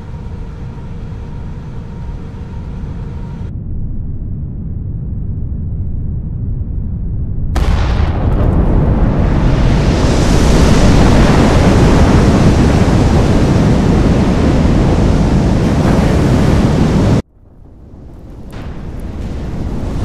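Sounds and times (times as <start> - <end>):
explosion rumbling roar: 7.5 - 20.0.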